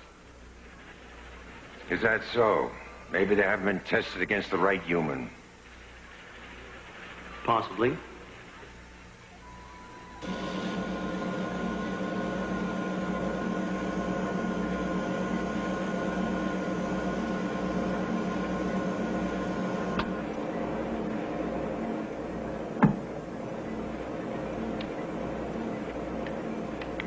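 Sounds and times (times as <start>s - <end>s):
electronic machinery hum: 0.0s - 27.0s
high whining tones: 8.7s - 27.0s.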